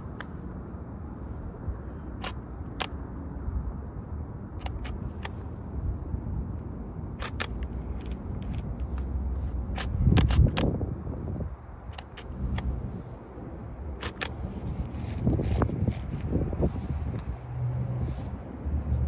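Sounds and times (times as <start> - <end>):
camera shutter clicks: 7.2 - 8.8, 9.8 - 10.7, 11.9 - 12.7, 14.0 - 14.5.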